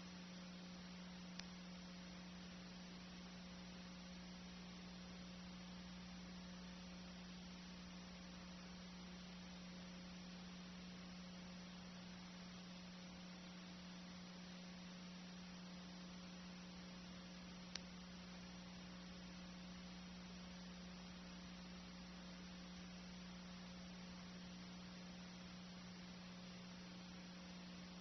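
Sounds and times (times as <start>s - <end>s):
low electrical hum: 0.0s - 28.0s
faint click: 1.3s - 1.6s, 17.3s - 18.0s.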